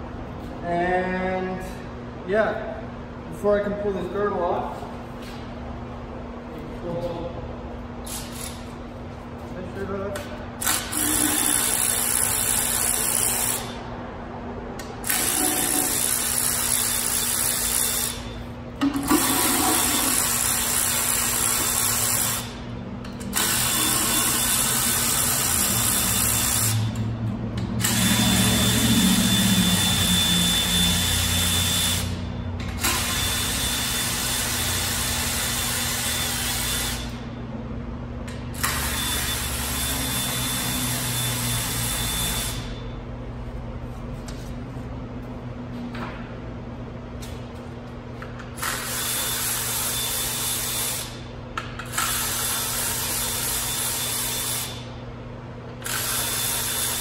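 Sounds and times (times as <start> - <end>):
cordless power tool running: 27.8 - 32.2, 32.8 - 37.1.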